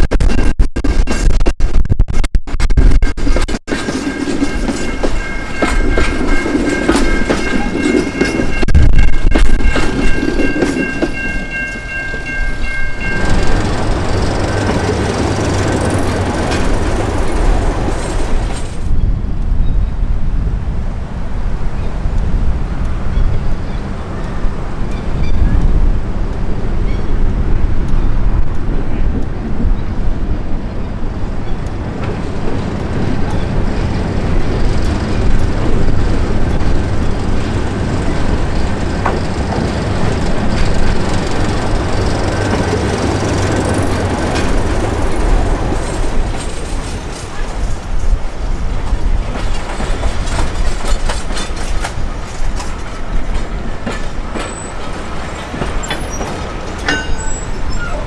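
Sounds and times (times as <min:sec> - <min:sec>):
diesel train engine drone: 0:03.2 - 0:58.0
wheels clicking over rails: 0:09.3 - 0:19.0, 0:31.5 - 0:48.2, 0:48.9 - 0:58.0.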